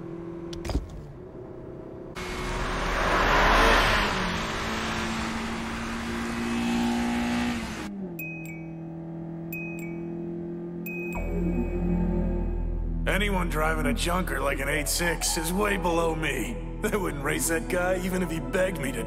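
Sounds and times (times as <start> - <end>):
wind and road noise: 0.0 - 11.1
car engine accelerating hard: 1.2 - 12.7.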